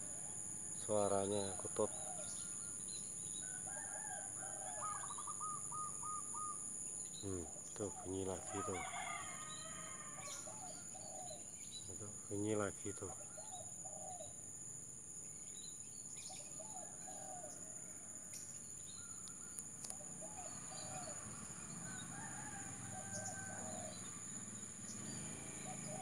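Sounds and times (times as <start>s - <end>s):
dove cooing: 3.7s - 6.6s, 10.2s - 11.5s, 12.9s - 14.4s, 19.9s - 24.2s, 24.9s - 26.0s.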